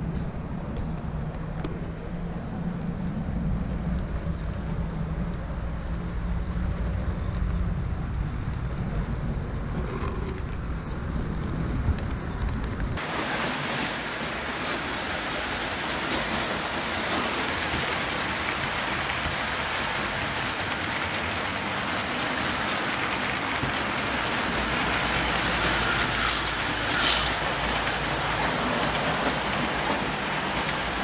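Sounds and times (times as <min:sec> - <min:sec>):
wheels rumbling on track: 0:00.0 - 0:31.0
even high hiss with ticks: 0:17.1 - 0:31.0.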